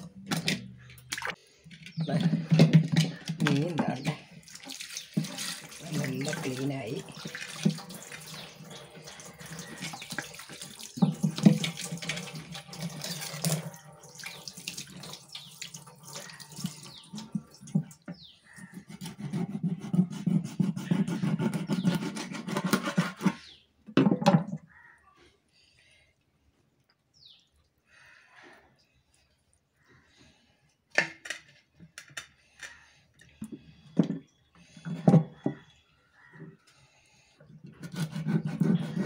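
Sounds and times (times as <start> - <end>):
tap water running into sink: 2.7 - 18.2.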